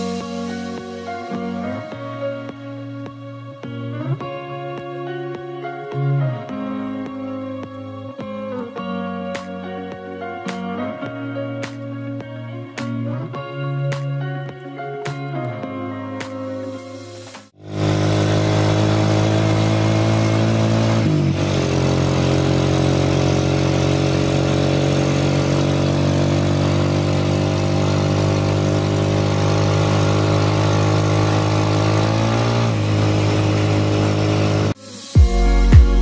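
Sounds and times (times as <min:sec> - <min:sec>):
motorcycle engine running: 0:00.0 - 0:01.6, 0:17.6 - 0:36.0
road noise: 0:16.6 - 0:34.9.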